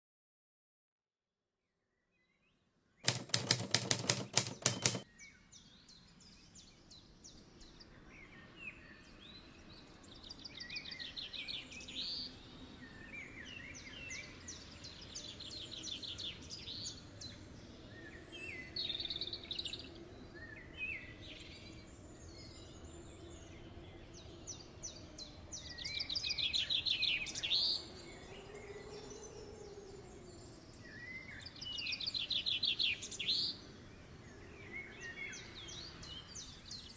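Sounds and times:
rapid loud clicks: 0:03.1 - 0:05.0.

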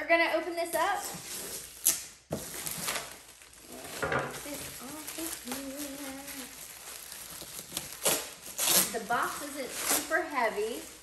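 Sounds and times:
plastic crinkling: 0:01.6 - 0:11.0
shrink wrap snapping: 0:01.8 - 0:10.2.

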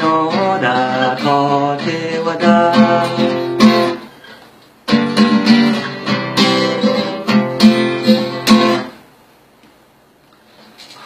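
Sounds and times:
acoustic guitar strumming: 0:00.0 - 0:09.1.

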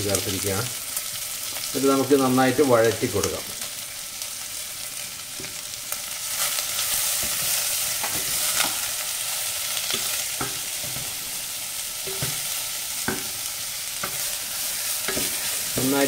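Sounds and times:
onions sizzling in hot oil: 0:00.0 - 0:16.0
wooden spatula knocking pot: 0:12.1 - 0:13.4.

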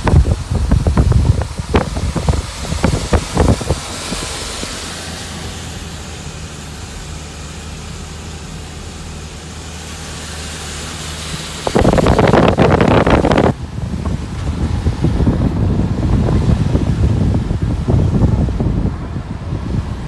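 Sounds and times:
wind buffeting microphone: 0:00.0 - 0:05.1, 0:11.5 - 0:20.0
low engine hum: 0:00.0 - 0:20.0
road noise inside car: 0:00.0 - 0:20.0.

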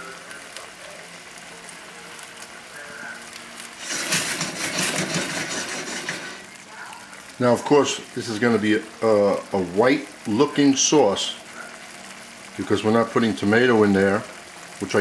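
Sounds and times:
chicken sizzling in pan: 0:00.0 - 0:15.0
pan scraping on grate: 0:03.8 - 0:06.5.

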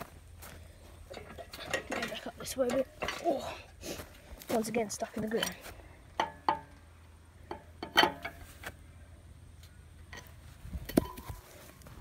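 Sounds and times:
metal clanks and knocks: 0:01.0 - 0:03.6, 0:05.2 - 0:08.5.

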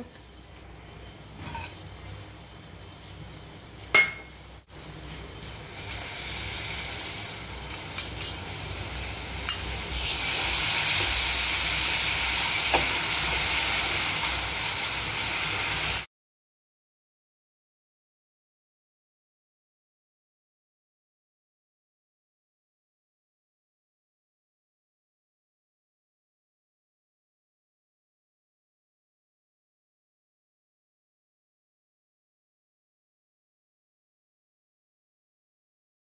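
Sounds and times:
sharp clink: 0:04.0 - 0:04.4.

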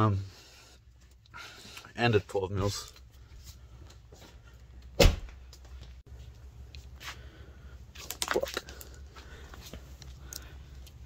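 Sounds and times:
heavy thump: 0:05.0 - 0:05.4.

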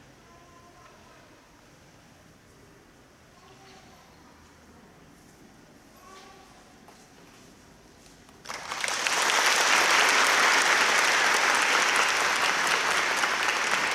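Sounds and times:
audience applauding: 0:08.4 - 0:13.9.

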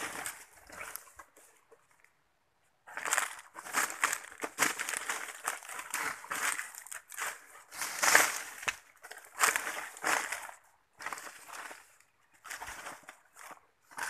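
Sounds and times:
footsteps through dry leaves: 0:02.9 - 0:11.9
twigs crunching and brushing: 0:02.9 - 0:14.0.

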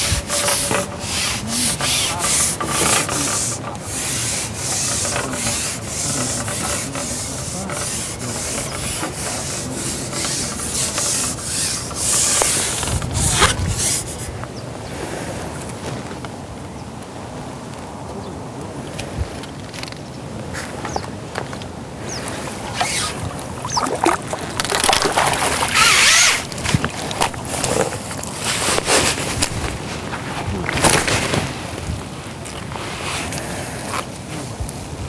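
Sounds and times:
rustling rubbing noise: 0:00.0 - 0:14.5, 0:22.0 - 0:35.0.

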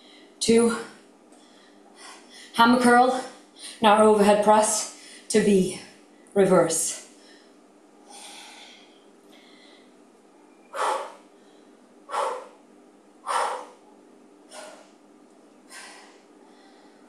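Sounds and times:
woman exhaling forcefully: 0:10.8 - 0:11.2, 0:13.3 - 0:13.8, 0:14.5 - 0:14.9.

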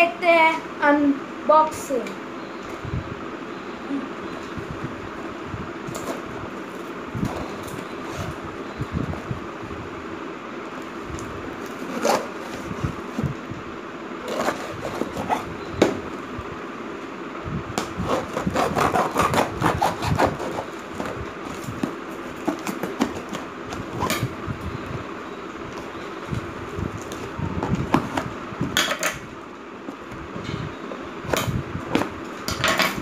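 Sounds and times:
steady background hum: 0:00.0 - 0:33.0
knife cutting packing tape: 0:11.7 - 0:12.6, 0:14.2 - 0:15.5, 0:18.0 - 0:24.3.

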